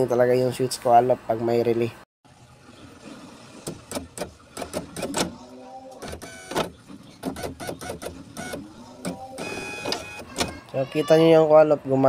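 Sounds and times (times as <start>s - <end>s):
power window motor whir: 6.0s - 10.5s.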